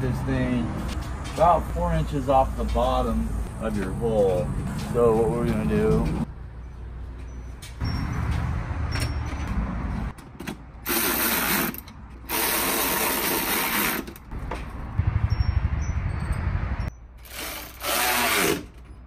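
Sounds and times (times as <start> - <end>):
cordless power ratchet driving bolts: 17.2 - 18.8.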